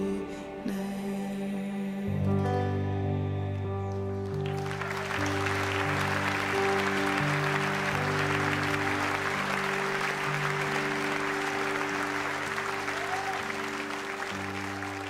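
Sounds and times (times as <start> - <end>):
long held music chords: 0.0 - 15.0
audience applauding: 4.2 - 15.0.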